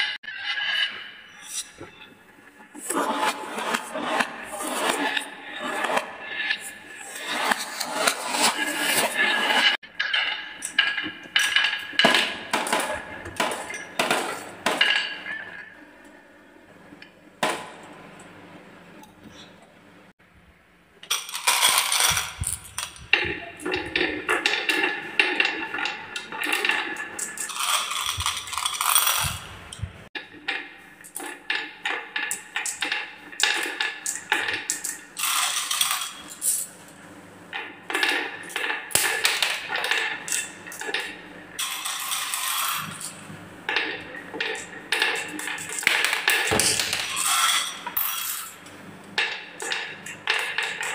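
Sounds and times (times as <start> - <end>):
marbles clattering on wooden tracks: 21.0 - 29.9, 30.5 - 36.7, 37.9 - 48.6.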